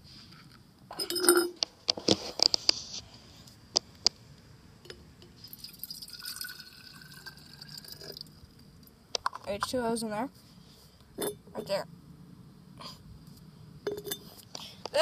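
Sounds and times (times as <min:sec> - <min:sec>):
water pouring into glass jar: 0:05.5 - 0:08.4.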